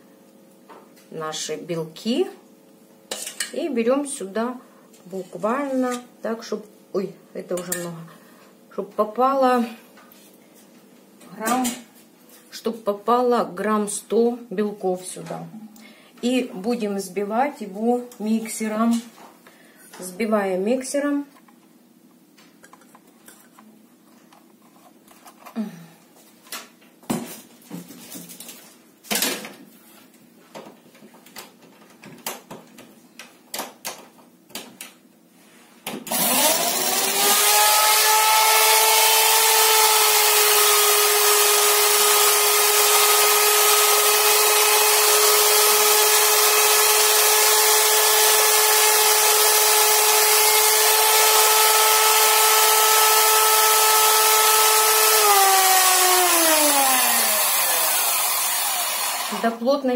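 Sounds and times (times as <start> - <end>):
electric hand mixer whirring: 36.1 - 59.5.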